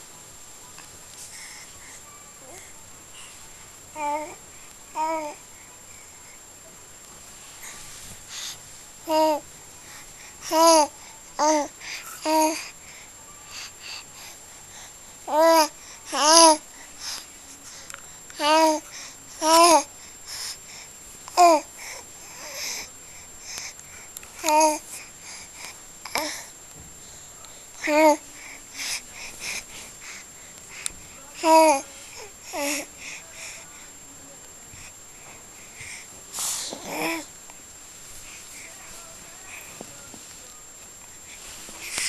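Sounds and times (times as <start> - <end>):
soft breathy sounds: 0.0 - 42.0
baby cooing and babbling: 4.0 - 5.4, 9.1 - 9.4, 10.5 - 12.6, 15.3 - 16.6.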